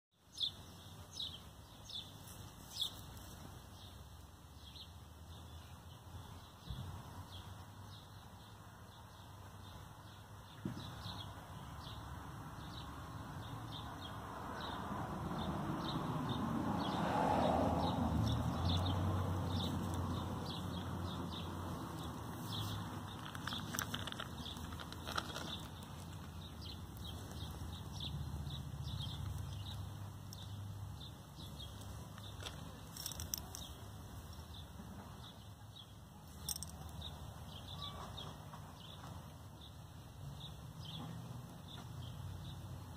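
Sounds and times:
birds chirping: 15.4 - 42.9.

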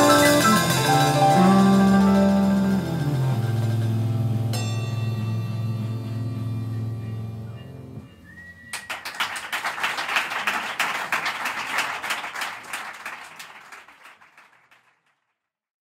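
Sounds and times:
short whistle: 0.0 - 2.2, 8.0 - 9.2
jazz band final chord: 0.0 - 8.1
audience applause: 8.7 - 15.1.

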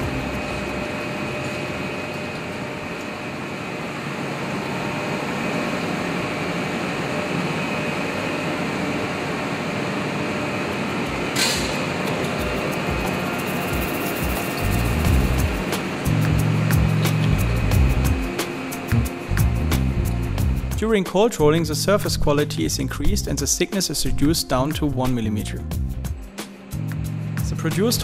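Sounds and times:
rolling mill machine running: 0.0 - 21.2.

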